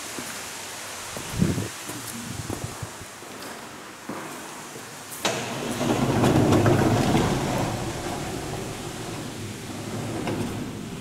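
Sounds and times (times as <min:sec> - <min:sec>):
heavy sliding door rumbling open: 0:05.2 - 0:11.0.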